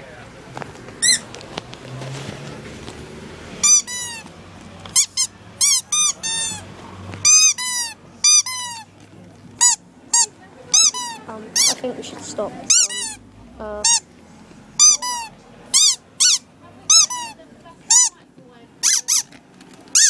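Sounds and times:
squeaky toys squeaking: 1.0s - 1.3s, 3.6s - 4.3s, 4.9s - 8.9s, 9.6s - 11.8s, 12.6s - 14.1s, 14.8s - 18.2s, 18.8s - 20.0s.

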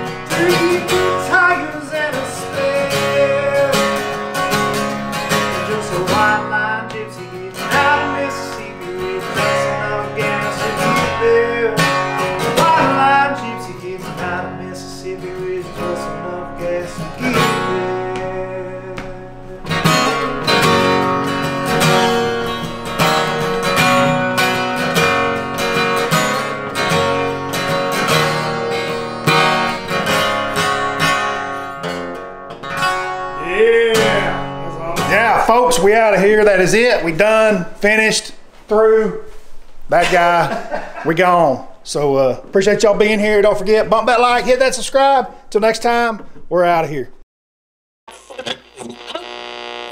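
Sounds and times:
acoustic guitar strumming and picking: 0.0s - 37.5s, 48.1s - 49.9s.

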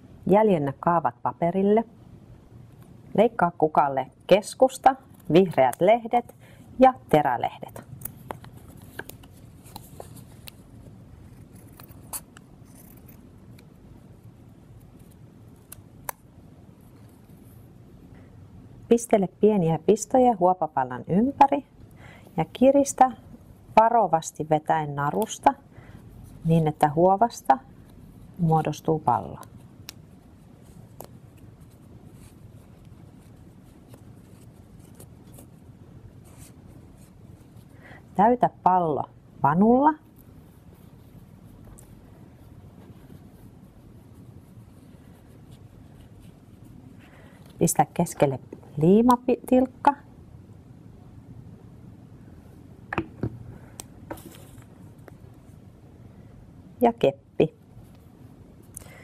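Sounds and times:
low room hum: 0.0s - 59.0s
rustling of felt and thread: 2.8s - 50.1s, 52.2s - 56.6s
scissors snipping felt: 15.6s - 16.3s.

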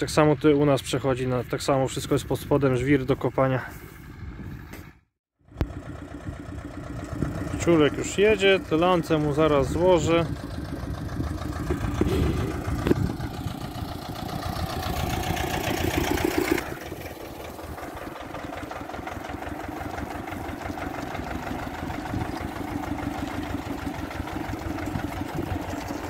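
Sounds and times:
diesel tractor engine idling: 5.5s - 26.0s.

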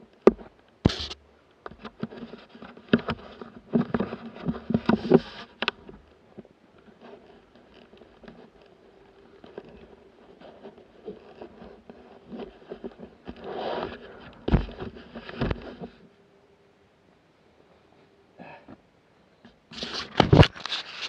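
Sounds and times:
clothing and gear rustling: 2.0s - 16.1s
heavy thumps: 9.4s - 16.0s.

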